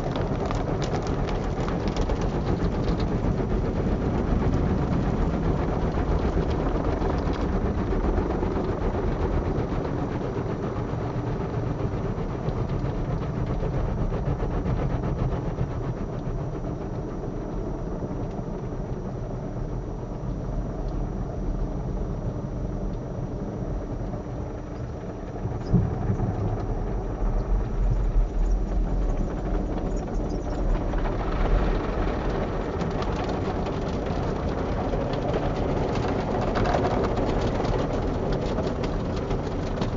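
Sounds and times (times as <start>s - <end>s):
car wash machinery rumble: 0.0s - 39.9s.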